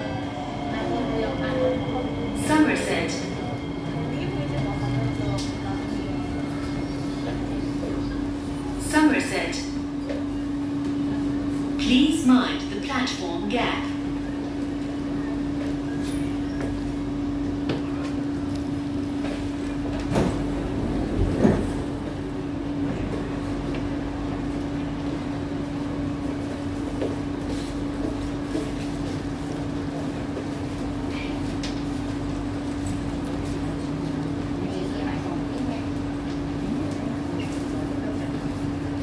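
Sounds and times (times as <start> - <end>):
train hum: 0.0 - 39.0
train doors sliding open: 19.3 - 23.5.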